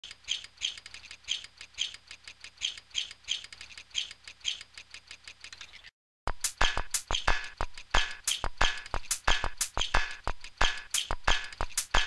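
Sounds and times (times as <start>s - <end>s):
high-pitched bird-like chirps: 0.1s - 2.0s, 2.6s - 4.6s.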